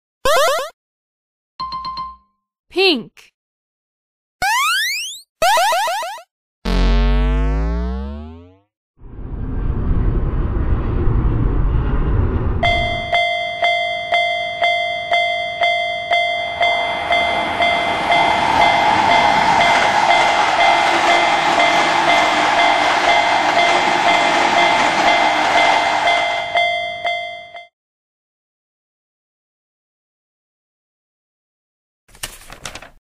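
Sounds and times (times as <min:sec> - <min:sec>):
jet airplane rumble: 0:09.0 - 0:13.3, 0:16.2 - 0:25.9
passing train rushing: 0:09.0 - 0:27.4
railroad crossing bell ringing: 0:12.6 - 0:27.7.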